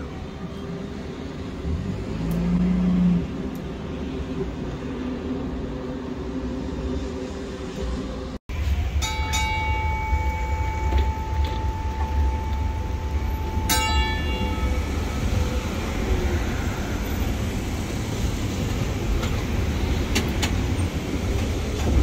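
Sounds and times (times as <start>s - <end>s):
tram running rumble: 0.0s - 22.0s
high ringing tone: 8.6s - 17.4s
bell-like strike: 8.8s - 16.8s.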